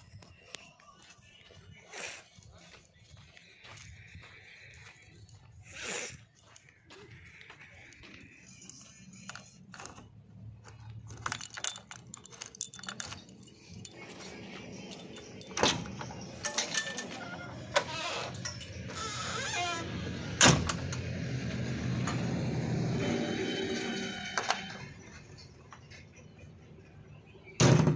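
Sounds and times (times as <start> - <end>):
keys jangling: 8.5 - 19.7.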